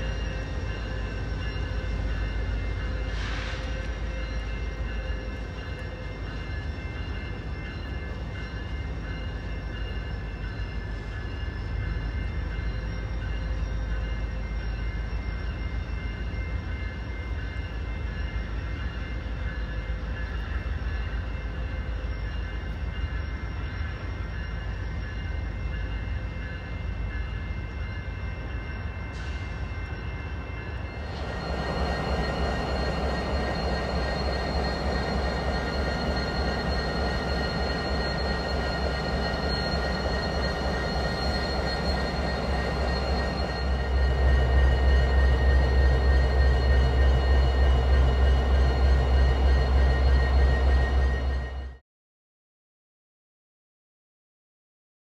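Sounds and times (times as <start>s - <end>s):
diesel locomotive engines running: 0.0s - 51.8s
steady whining tones: 21.6s - 51.8s.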